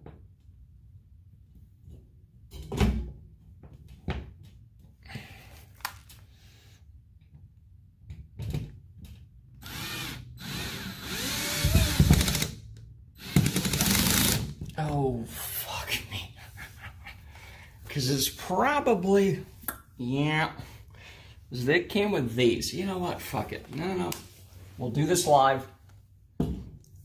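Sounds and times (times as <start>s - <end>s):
cordless drill driving a screw: 9.6s - 12.6s, 13.2s - 14.5s.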